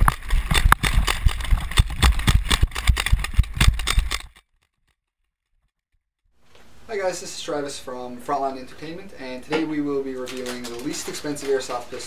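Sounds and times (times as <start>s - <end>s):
rapid gunfire: 0.0s - 4.2s.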